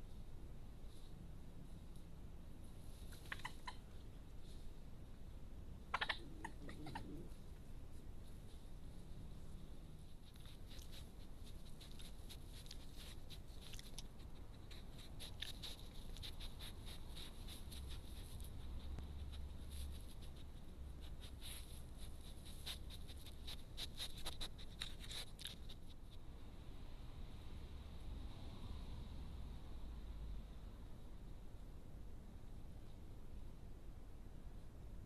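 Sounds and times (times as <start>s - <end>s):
faint steady hum: 0.0s - 35.0s
badgers snuffling and chewing: 6.0s - 26.2s.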